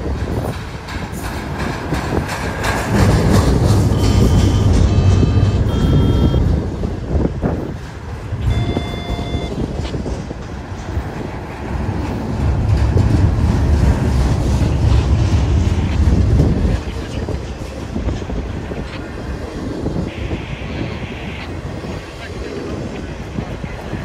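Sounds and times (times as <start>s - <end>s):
train wheels rumbling on rails: 0.0s - 24.0s
brief high tones: 3.9s - 6.5s, 8.4s - 9.6s.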